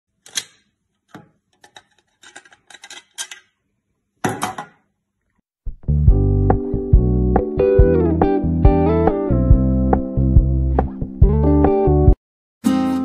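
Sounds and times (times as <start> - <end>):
plastic parts clicking: 0.2 - 3.5
loud guitar music: 6.0 - 13.0.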